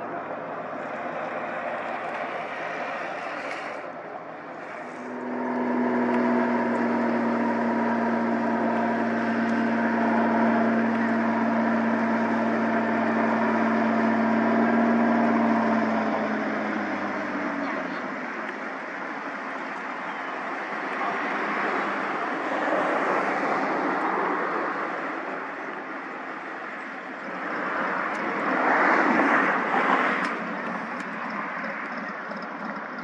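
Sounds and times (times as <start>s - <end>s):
faint engine sound: 0.0s - 33.0s
seaplane engine droning: 0.0s - 33.0s.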